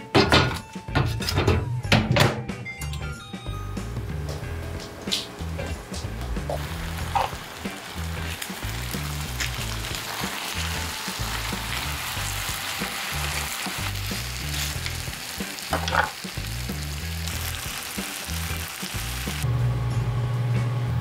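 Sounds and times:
meat sizzling on a grill pan: 0:06.4 - 0:19.4.

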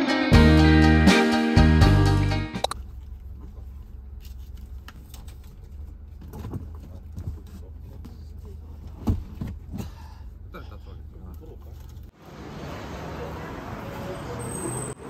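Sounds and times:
strummed guitar: 0:00.0 - 0:02.7.

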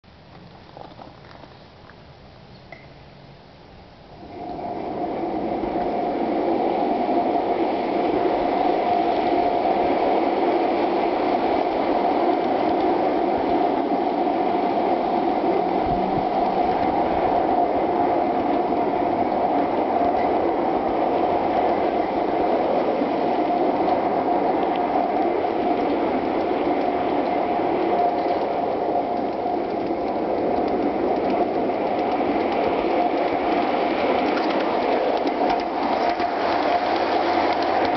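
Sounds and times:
steady whine: 0:00.0 - 0:37.9
train wheels rattling on track: 0:03.9 - 0:37.9.

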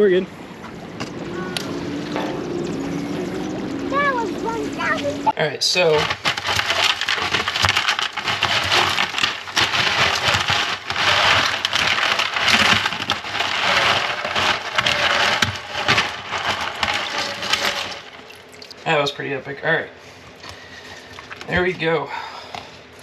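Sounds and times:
fish scrabbling in plastic bucket: 0:05.8 - 0:18.8, 0:20.5 - 0:21.7.

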